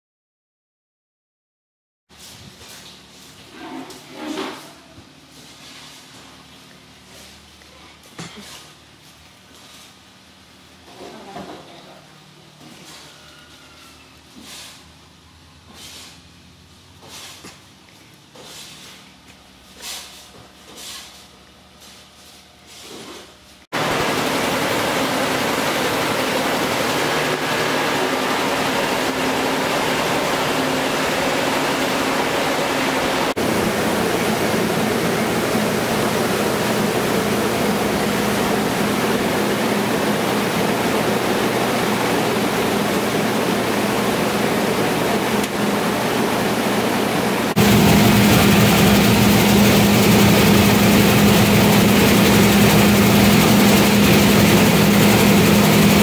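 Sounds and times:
rice mill machine humming: 23.8s - 56.0s.

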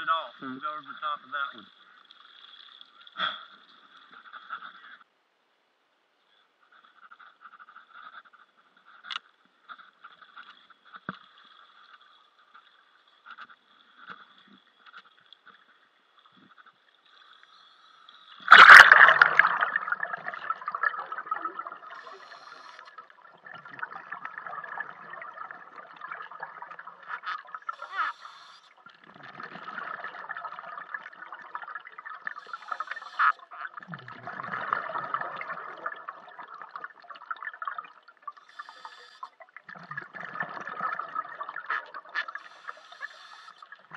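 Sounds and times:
muffled underwater bubbling: 18.4s - 43.9s.

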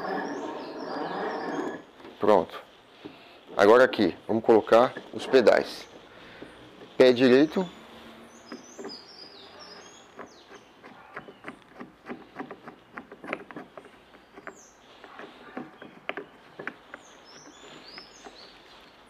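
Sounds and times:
birds chirping: 0.0s - 19.0s
plastic clicks and knocks: 10.2s - 18.1s.

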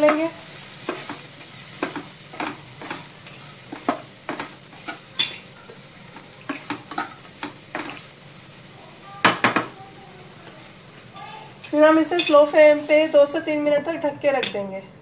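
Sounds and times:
spatula scraping vegetables in pan: 0.0s - 8.2s
frying sizzle: 0.0s - 15.0s.

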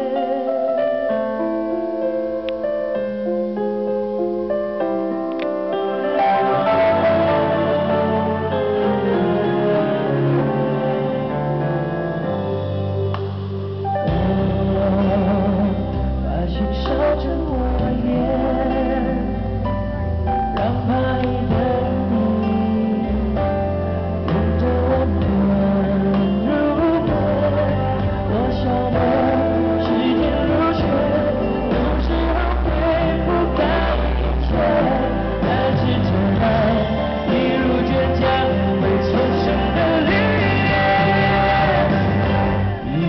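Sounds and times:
pop band accompaniment with bass: 0.0s - 43.0s
man singing into microphone: 14.1s - 19.7s, 20.4s - 43.0s.

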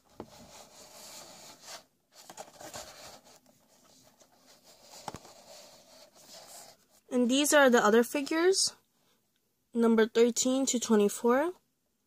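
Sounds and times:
hands rubbing cardboard box: 0.1s - 7.0s.

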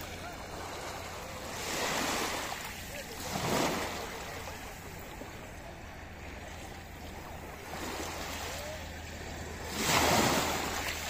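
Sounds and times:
small waves washing over sand: 0.0s - 11.0s.

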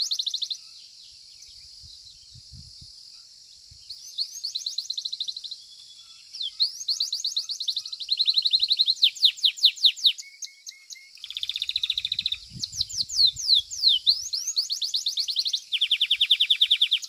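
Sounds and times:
canary singing trills: 0.0s - 2.5s, 3.2s - 17.0s.

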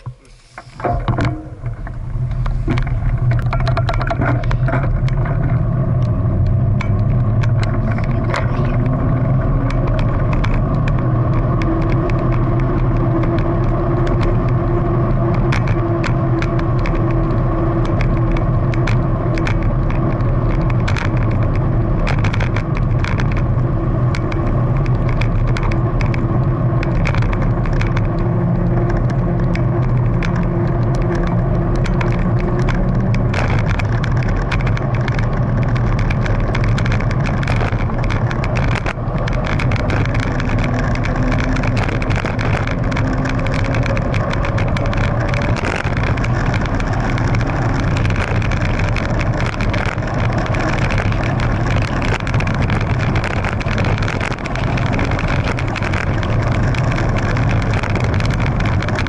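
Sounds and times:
rising hum: 0.0s - 19.3s
bike rattles and clicks: 0.0s - 59.0s
tyres on asphalt: 0.0s - 59.0s
wind rumble on microphone: 0.0s - 59.0s.

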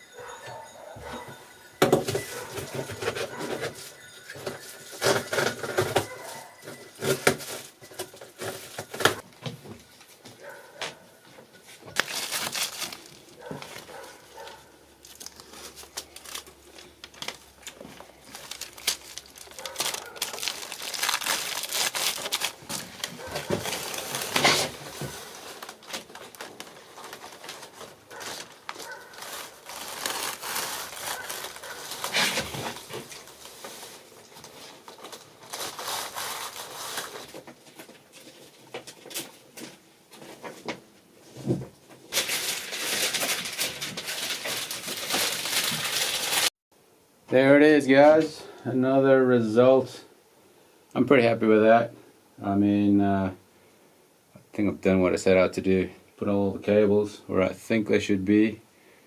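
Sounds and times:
foil tape crinkling and rustling: 1.8s - 10.5s, 11.4s - 40.8s, 41.4s - 46.5s.

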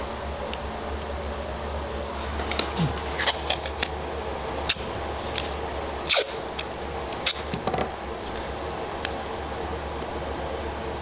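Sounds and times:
tape tearing and crackling: 2.4s - 9.2s.

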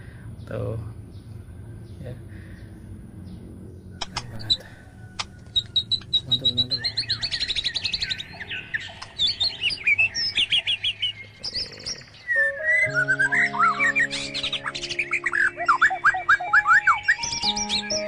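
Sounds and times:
songbird singing: 0.0s - 18.0s.

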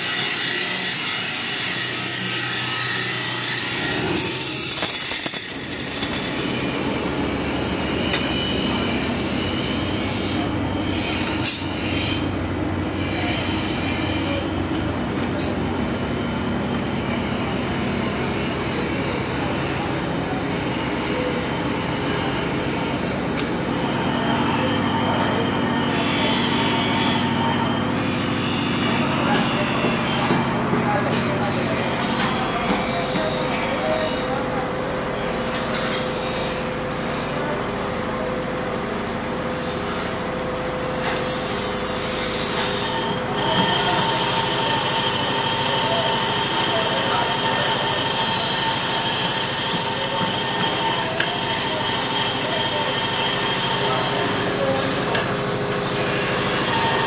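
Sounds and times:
high metallic squeal of drill bit: 0.0s - 14.6s, 20.6s - 30.7s, 31.4s - 37.5s, 39.2s - 57.0s
workshop machinery running: 0.0s - 57.0s
drill press running: 34.2s - 57.0s.

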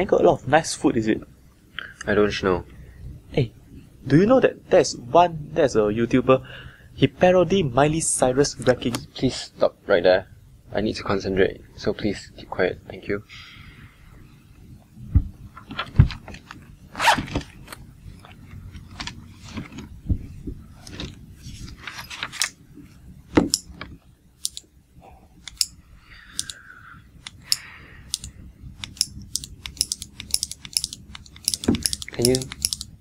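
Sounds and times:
retractable pen clicking: 25.4s - 26.6s, 27.2s - 33.0s.

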